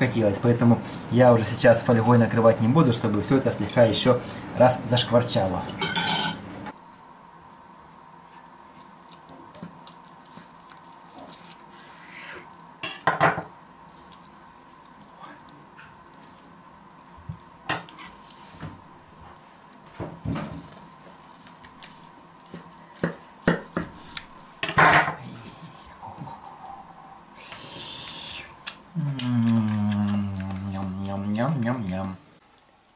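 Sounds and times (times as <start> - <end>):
faint steady hum: 0.0 - 32.9.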